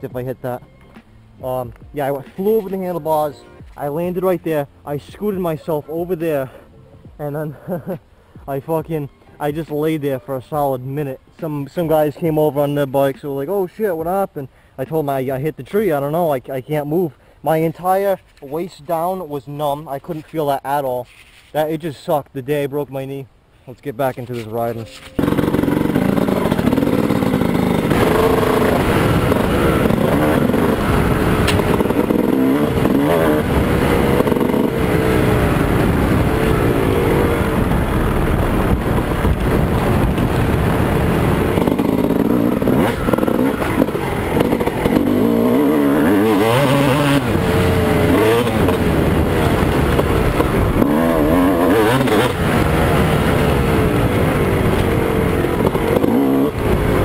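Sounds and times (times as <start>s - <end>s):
motorcycle engine revving: 25.2s - 57.0s.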